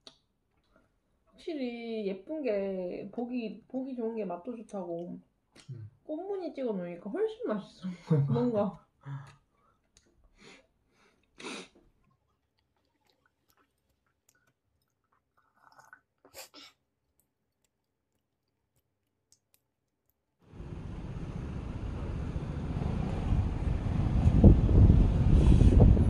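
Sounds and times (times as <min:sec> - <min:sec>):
quiet chewing with crunches: 0:11.1 - 0:20.1.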